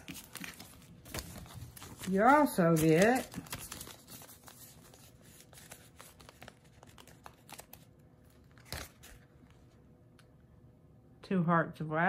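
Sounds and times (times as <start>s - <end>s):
plastic bags rustling: 0.0s - 7.7s.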